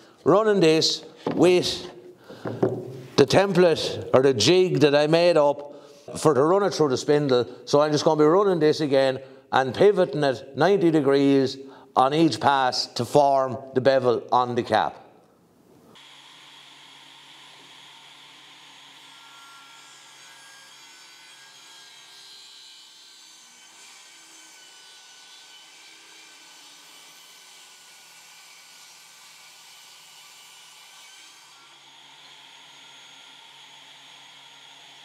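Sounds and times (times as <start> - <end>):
saw cutting wood: 16.0 - 35.0
table saw running: 16.0 - 35.0.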